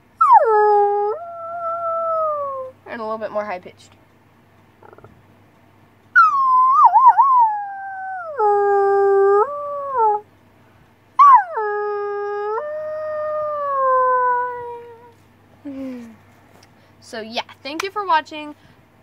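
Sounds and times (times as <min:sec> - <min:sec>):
person imitating wolf howl: 0:00.2 - 0:02.8, 0:06.2 - 0:10.3, 0:11.2 - 0:15.1.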